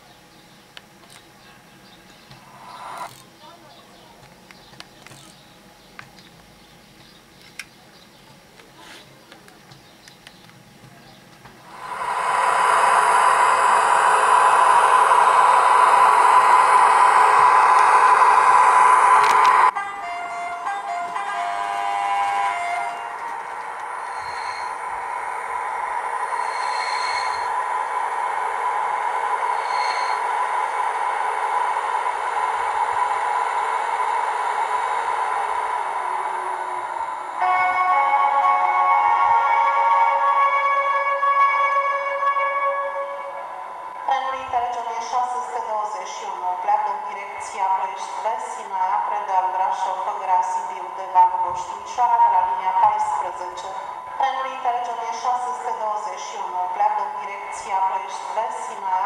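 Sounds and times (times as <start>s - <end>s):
electric locomotive running sound: 0.0s - 3.3s, 10.1s - 59.0s
hissing whir with steady whine: 0.0s - 59.0s.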